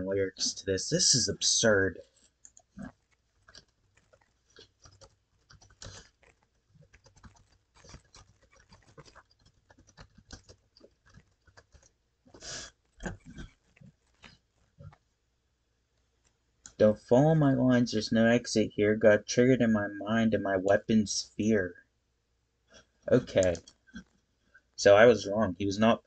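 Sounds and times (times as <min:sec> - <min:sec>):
keyboard typing and clicks: 0:02.4 - 0:11.9.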